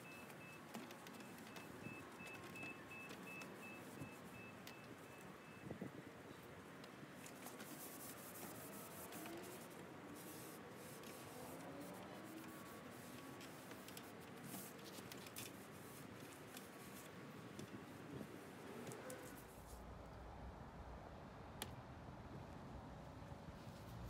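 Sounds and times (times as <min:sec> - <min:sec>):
cloth rubbing on wood: 0:07.4 - 0:17.2.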